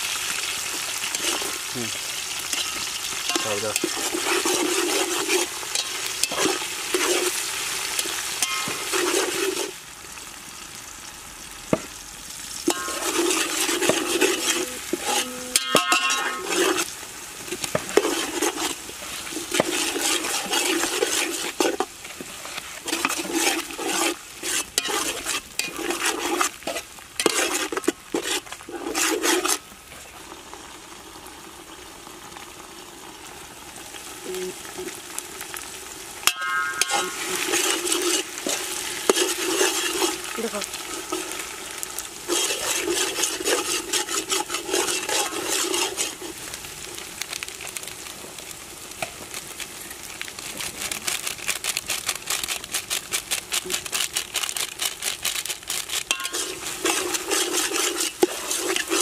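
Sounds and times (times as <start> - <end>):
onions sizzling: 0.0 - 59.0
metal ladle scraping pot: 1.1 - 1.5, 2.5 - 7.4, 8.0 - 9.8, 12.7 - 16.9, 17.5 - 29.6, 36.2 - 41.5, 42.2 - 46.4, 55.7 - 59.0.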